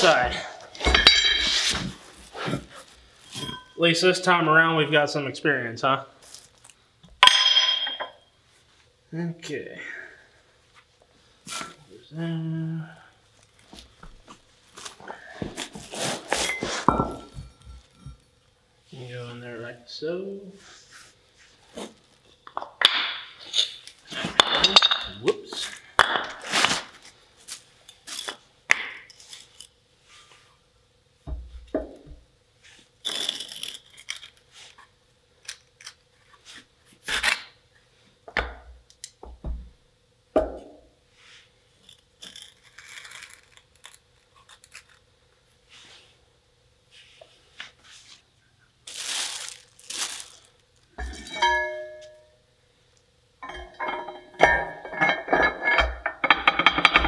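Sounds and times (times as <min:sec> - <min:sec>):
steel parts knocking and clinking: 0:00.8 - 0:01.5, 0:07.2 - 0:08.2, 0:24.4 - 0:25.3, 0:51.0 - 0:52.4, 0:53.4 - 0:57.0
rustling: 0:46.9 - 0:52.2.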